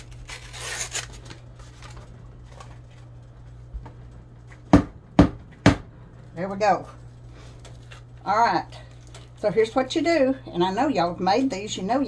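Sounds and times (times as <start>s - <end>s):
paper wrapper tearing: 0.0s - 2.7s.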